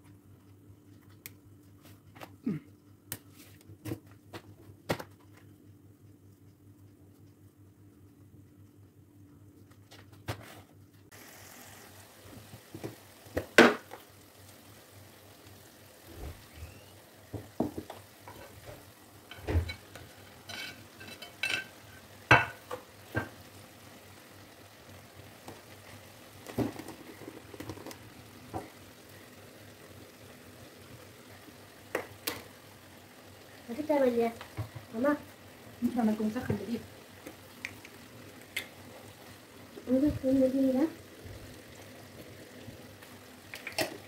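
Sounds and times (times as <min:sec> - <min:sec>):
onions sizzling in a pan: 0:11.1 - 0:44.0.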